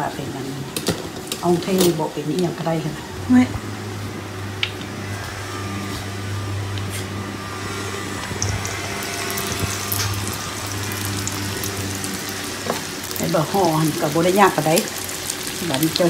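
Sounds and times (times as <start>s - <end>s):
low steady hum: 0.0s - 16.0s
food sizzling in hot oil: 3.4s - 16.0s.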